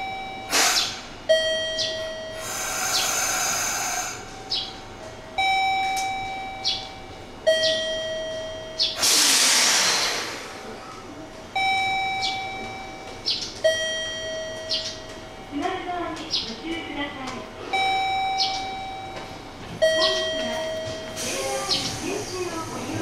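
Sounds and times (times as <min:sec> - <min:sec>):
compressed-air hiss: 0:00.5 - 0:01.1, 0:02.4 - 0:04.2, 0:09.0 - 0:10.7.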